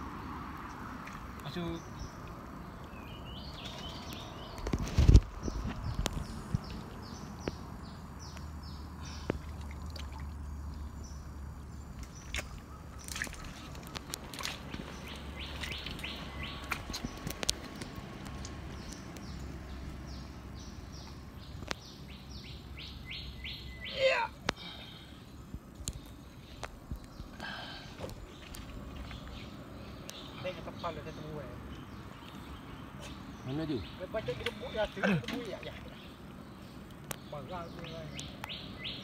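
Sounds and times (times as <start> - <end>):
bird chirping: 0.1 - 39.0
hand squelching in wet mud: 12.0 - 18.5.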